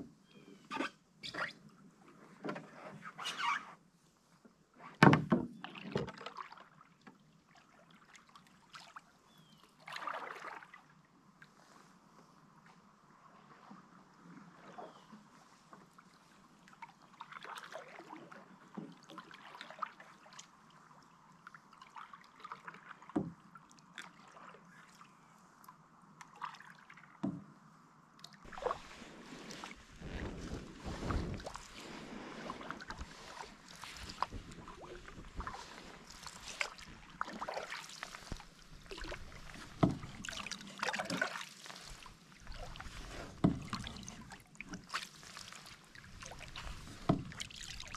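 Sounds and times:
paddle strokes in water: 0:00.0 - 0:27.5, 0:28.2 - 0:47.9
sharp knocks on canoe: 0:05.0 - 0:05.6, 0:39.7 - 0:40.2, 0:43.3 - 0:43.8, 0:47.0 - 0:47.4
water dripping and lapping: 0:05.6 - 0:11.6, 0:14.5 - 0:27.2, 0:28.2 - 0:47.9
wind rumble on microphone: 0:28.5 - 0:37.1.

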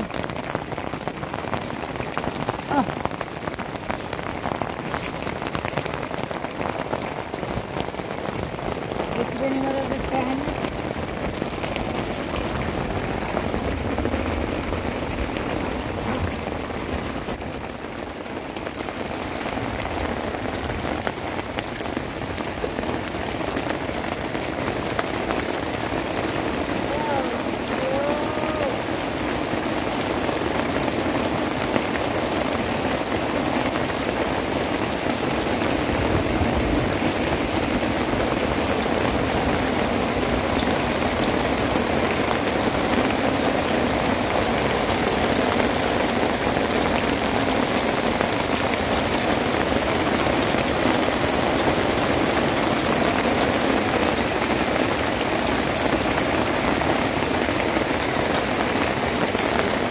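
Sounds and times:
rain on stony ground: 0:00.0 - 0:59.9.

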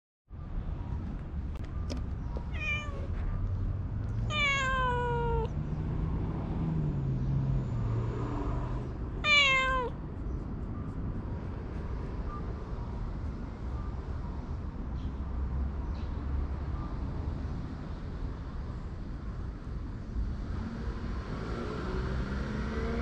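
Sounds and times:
cat meowing: 0:02.5 - 0:03.1, 0:04.2 - 0:05.6, 0:09.2 - 0:10.0.

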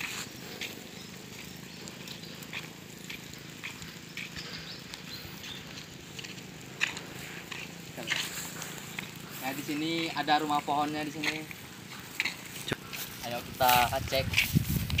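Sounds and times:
faint outdoor hum: 0:00.0 - 0:15.0
footsteps on brick paving: 0:00.0 - 0:15.0.

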